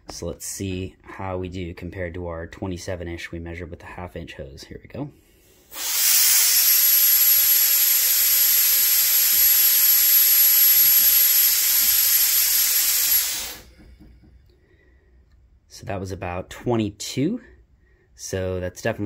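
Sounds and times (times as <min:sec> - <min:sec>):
compressed air rushing with whistle: 0:05.7 - 0:13.7.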